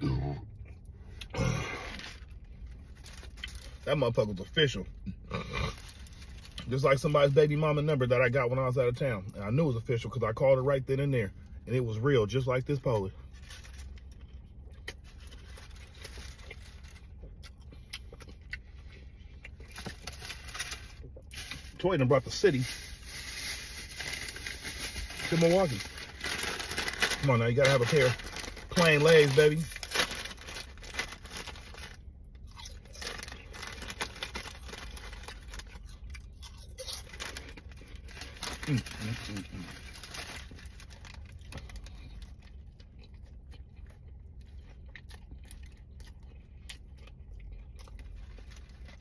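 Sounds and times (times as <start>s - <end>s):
low steady hum: 0.0s - 49.0s
potato chips crunching: 1.2s - 4.6s, 12.4s - 49.0s
person chewing: 13.9s - 20.2s, 32.3s - 39.4s, 41.2s - 49.0s.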